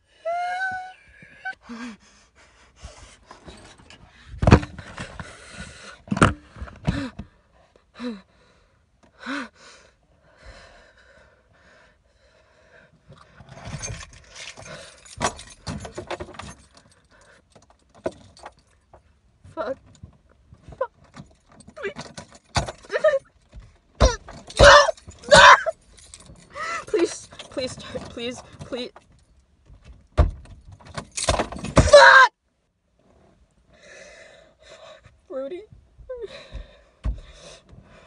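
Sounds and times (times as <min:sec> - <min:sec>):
woman sobbing and panting: 0:00.0 - 0:02.8, 0:07.8 - 0:08.3, 0:22.8 - 0:23.4, 0:24.0 - 0:28.3, 0:36.0 - 0:37.3
keys jangling: 0:13.6 - 0:18.9, 0:21.0 - 0:31.8.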